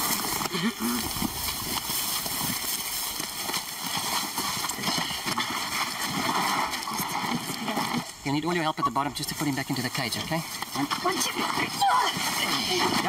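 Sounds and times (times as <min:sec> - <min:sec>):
footsteps in dry grass: 0:00.0 - 0:08.2
grass rustling: 0:00.0 - 0:13.0.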